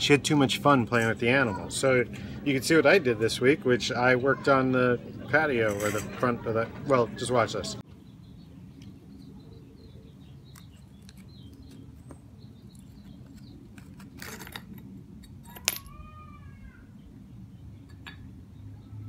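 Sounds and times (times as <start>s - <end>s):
tile shards clinking and scraping: 5.7s - 6.2s, 13.8s - 15.9s.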